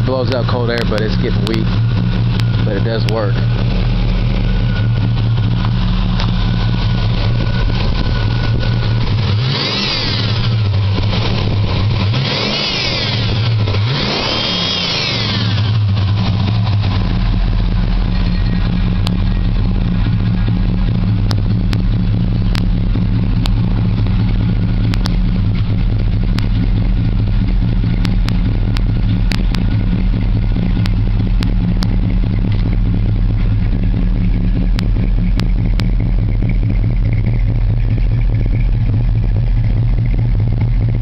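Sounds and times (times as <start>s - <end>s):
car engine idling: 0.0s - 41.0s
sharp clicks: 22.5s - 22.7s, 23.4s - 24.2s, 24.8s - 25.2s, 28.0s - 29.7s.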